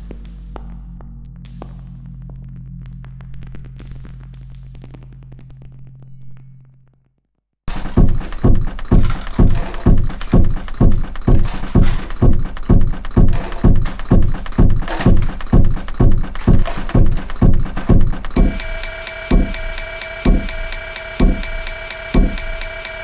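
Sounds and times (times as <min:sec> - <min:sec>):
heavy thumping dance beat: 0:07.7 - 0:23.0.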